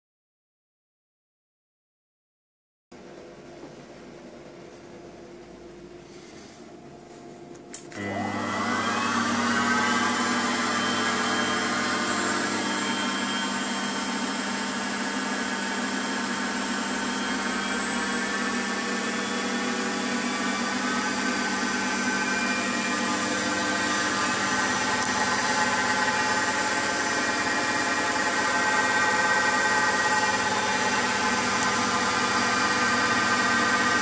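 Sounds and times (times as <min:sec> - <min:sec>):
lathe motor whine: 0:07.9 - 0:34.0.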